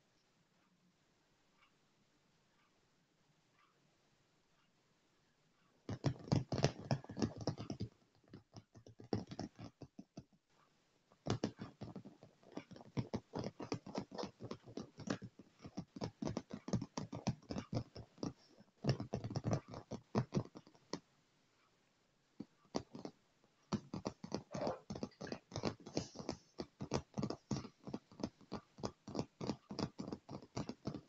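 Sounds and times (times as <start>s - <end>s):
fingernails tapping on leather: 5.9s - 10.3s, 11.2s - 21.0s, 22.4s - 31.0s.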